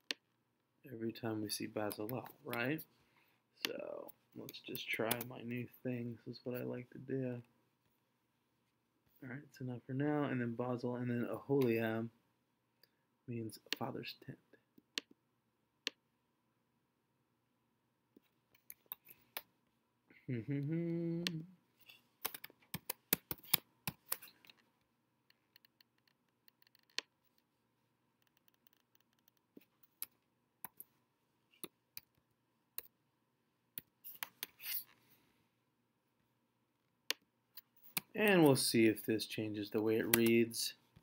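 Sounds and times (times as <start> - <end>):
man humming: 20.2 - 21.6.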